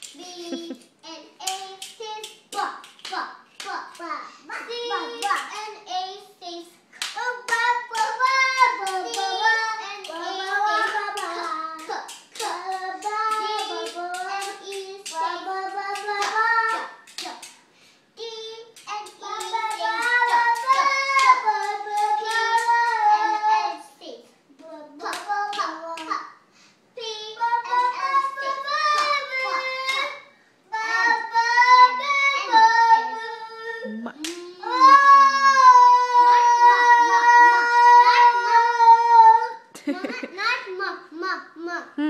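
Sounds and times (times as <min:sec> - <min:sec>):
hand claps: 0:00.0 - 0:04.1, 0:05.0 - 0:05.7, 0:07.0 - 0:17.6, 0:18.7 - 0:23.3, 0:25.0 - 0:26.2
child singing: 0:00.0 - 0:17.6, 0:18.2 - 0:26.4, 0:27.0 - 0:42.0.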